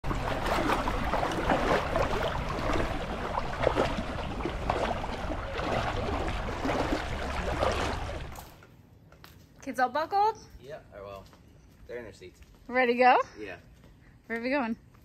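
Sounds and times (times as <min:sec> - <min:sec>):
legs wading through water: 0:00.0 - 0:08.6.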